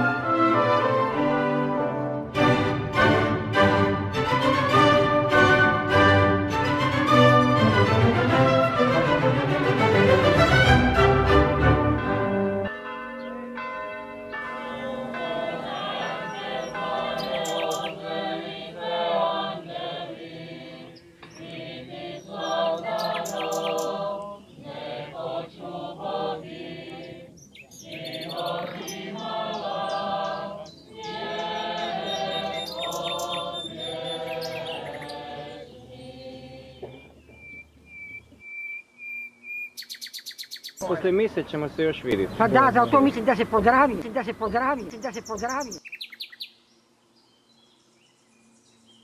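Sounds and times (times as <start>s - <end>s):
voices singing: 13.3s - 37.4s, 40.8s - 45.8s.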